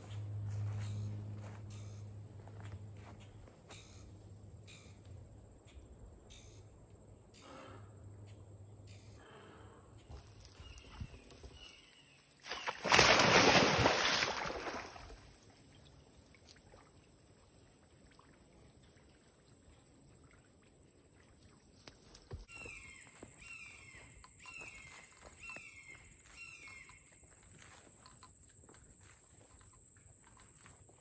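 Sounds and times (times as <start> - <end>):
water splashing: 12.4 - 22.2
bird calling: 22.2 - 27.8.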